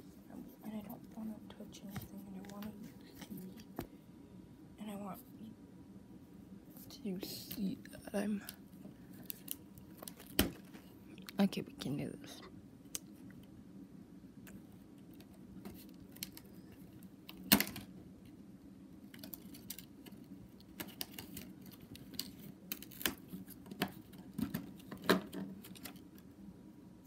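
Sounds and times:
plastic clicks and crinkles: 9.2 - 11.4, 15.0 - 17.9, 19.1 - 26.3.

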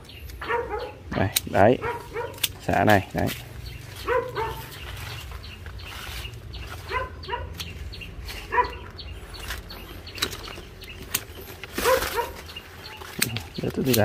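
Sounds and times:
pruning shears snipping: 0.0 - 14.0
dog barking: 0.4 - 2.5, 4.0 - 4.8, 6.8 - 7.6, 8.4 - 8.9, 11.8 - 13.0.

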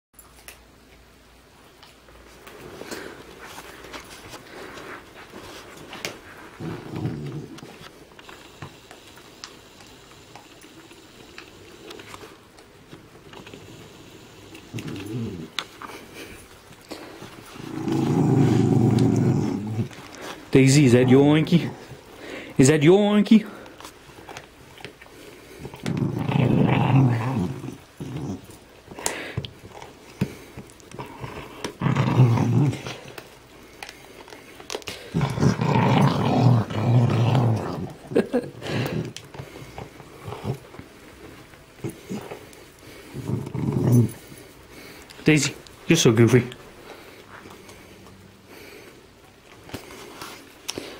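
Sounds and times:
dog chewing: 1.8 - 45.9
dog growling: 4.5 - 8.8, 13.2 - 22.6, 23.5 - 33.8, 34.4 - 45.0.

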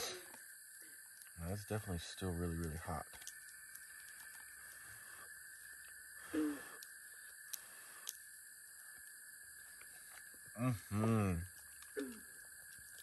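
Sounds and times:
background hiss: 0.0 - 13.0
faint clicks: 2.5 - 4.9, 6.7 - 8.2
person murmuring: 10.6 - 12.2.

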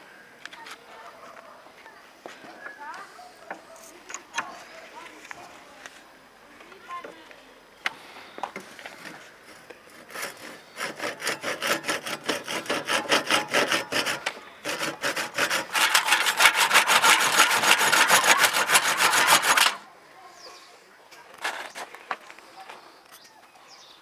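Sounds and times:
hand saw cutting wood: 9.9 - 19.8, 21.4 - 21.9.

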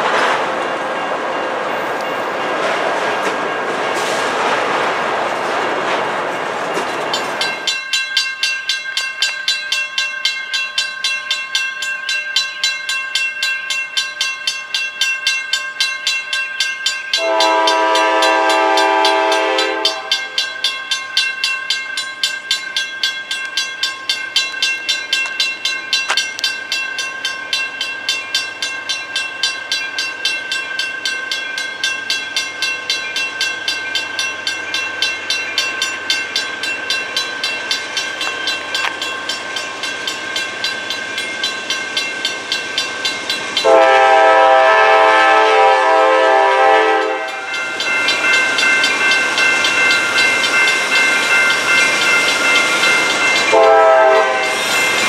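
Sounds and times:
bell ringing: 6.8 - 44.1, 46.6 - 55.0
locomotive air horn: 17.2 - 20.3, 43.6 - 47.5, 53.5 - 54.5.

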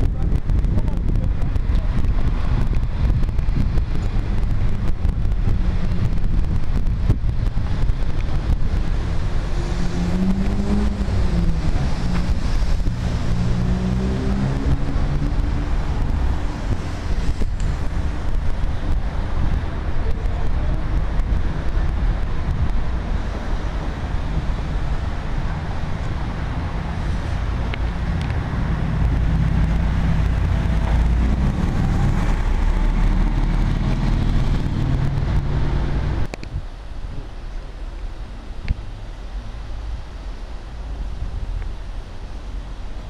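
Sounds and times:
wind buffeting microphone: 0.0 - 37.4
street noise: 0.0 - 43.0
engine running: 0.6 - 36.4.

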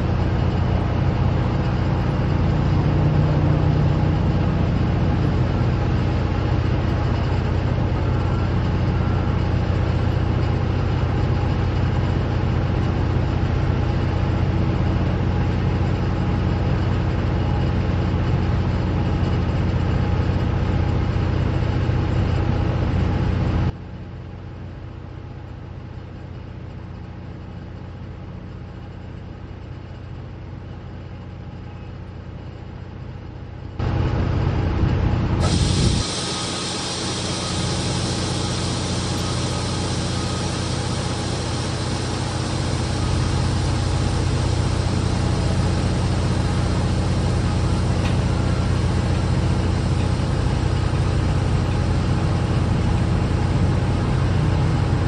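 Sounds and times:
steady hum: 33.8 - 55.0
train wheels rumbling on rails: 33.8 - 55.0.

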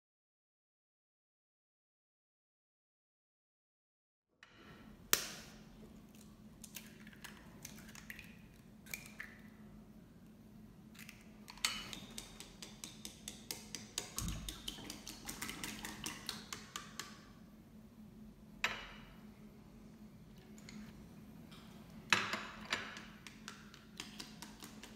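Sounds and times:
chopsticks beating eggs in bowl: 11.0 - 17.2, 22.9 - 24.9.

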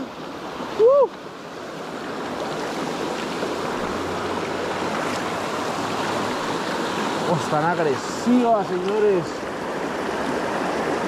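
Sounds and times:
stream flowing over rocks: 0.0 - 11.0.

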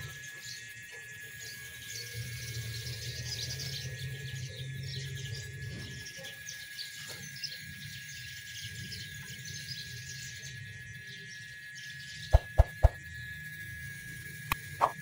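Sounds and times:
insects chirping: 0.0 - 15.0
birds chirping: 1.4 - 13.0
steady low hum: 11.8 - 15.0
sharp click sound effects: 12.4 - 13.0.

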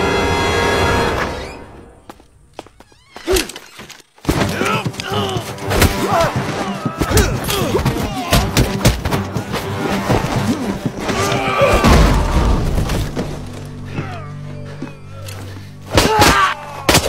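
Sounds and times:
men grunting and shouting: 4.4 - 8.8.

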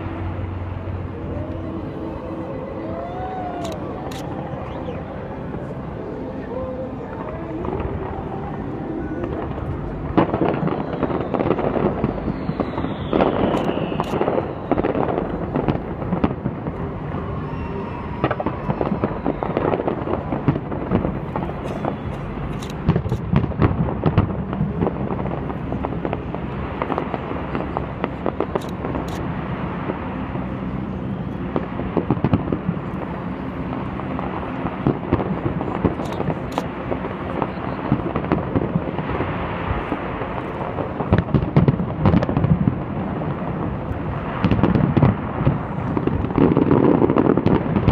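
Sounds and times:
fireworks bangs and crackling: 0.0 - 47.9.

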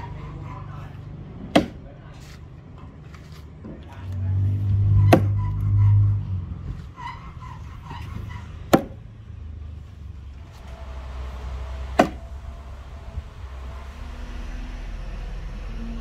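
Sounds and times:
low vehicle rumble: 0.0 - 16.0
axe thudding into wood: 1.5 - 1.8, 5.1 - 5.4, 8.7 - 9.0, 12.0 - 12.2.

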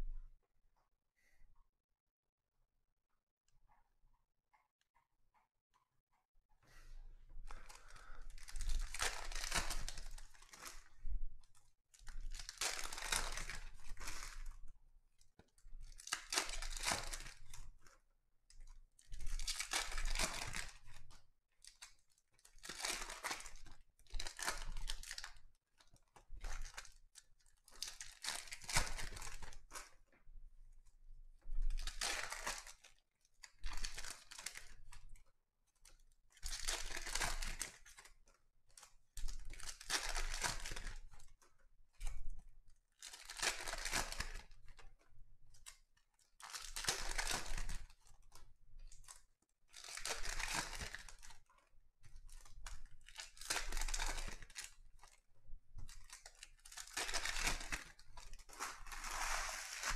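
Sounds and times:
foil packs tearing and crinkling: 7.5 - 10.7, 12.4 - 14.2, 43.1 - 44.5, 49.8 - 51.3, 53.1 - 54.6, 56.2 - 59.9.

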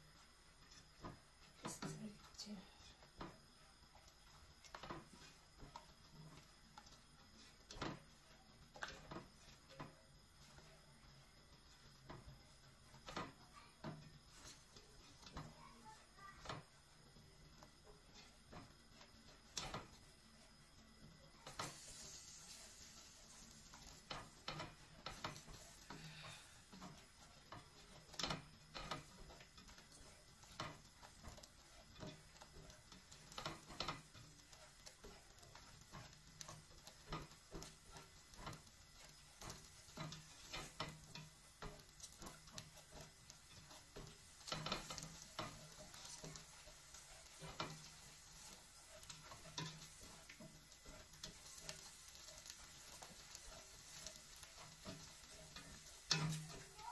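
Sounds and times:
spatula scraping a metal pot: 4.0 - 10.8, 17.6 - 20.1, 21.4 - 56.9.

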